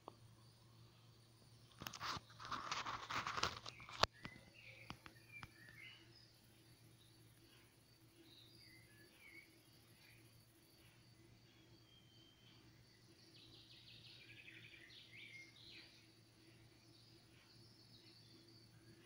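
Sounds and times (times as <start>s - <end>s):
insects buzzing: 0.0s - 19.0s
rustling and crunching: 1.7s - 4.3s
bird chirps: 2.0s - 19.0s.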